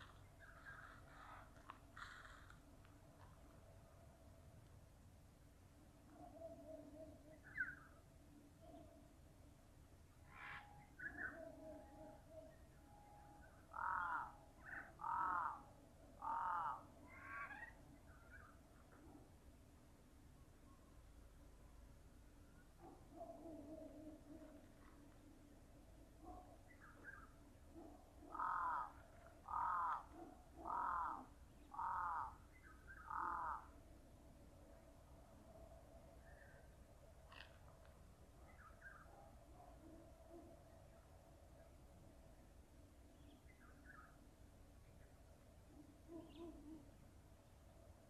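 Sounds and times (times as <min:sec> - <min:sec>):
faint short bird calls: 0:00.0 - 0:02.7, 0:10.2 - 0:18.6, 0:26.2 - 0:33.8, 0:46.1 - 0:47.0
crow cawing: 0:13.7 - 0:17.7, 0:28.3 - 0:32.4, 0:33.1 - 0:33.7.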